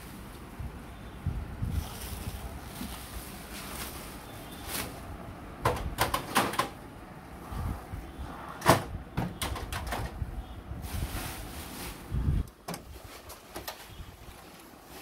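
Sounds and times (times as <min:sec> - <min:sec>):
copier door clack: 0:05.6 - 0:06.8, 0:08.6 - 0:10.2
copier door plastic clicks: 0:05.6 - 0:06.8.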